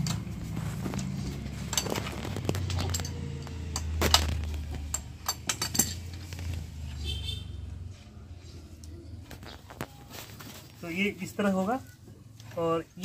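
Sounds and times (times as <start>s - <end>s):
metal clinks and taps: 1.0s - 6.4s.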